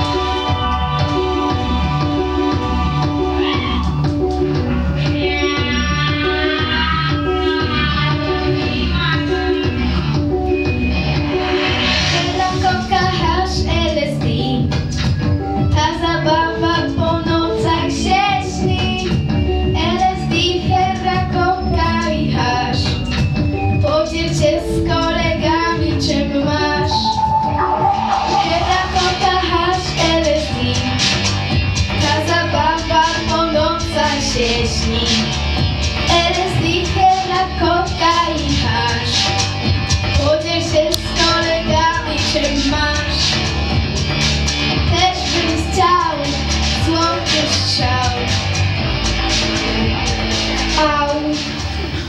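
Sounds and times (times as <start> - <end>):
music accompaniment: 0.0 - 52.0
girl singing with vibrato: 5.0 - 9.9, 12.2 - 14.7, 15.7 - 23.0, 23.8 - 31.0, 32.0 - 35.3, 36.0 - 39.2, 40.2 - 43.3, 44.8 - 48.3.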